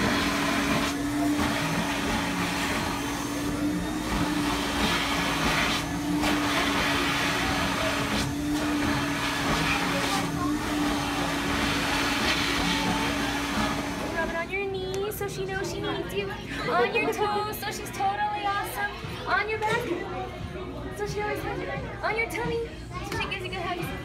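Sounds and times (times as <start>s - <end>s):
blower running with airy rush: 0.0s - 14.5s.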